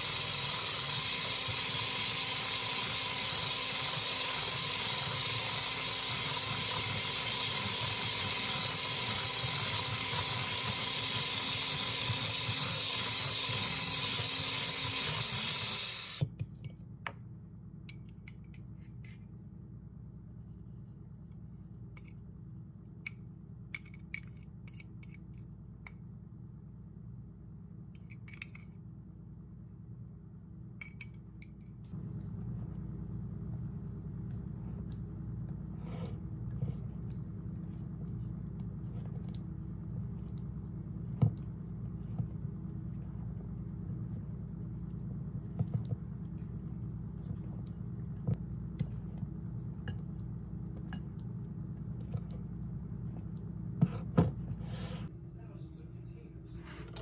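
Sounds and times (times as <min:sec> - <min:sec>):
electric hand mixer whipping: 0:00.0 - 0:16.3.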